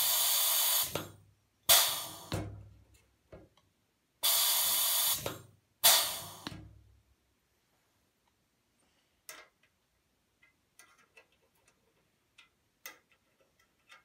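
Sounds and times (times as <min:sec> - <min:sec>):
pneumatic rivet squeezer: 0:00.0 - 0:01.1, 0:01.7 - 0:02.4, 0:04.2 - 0:06.5.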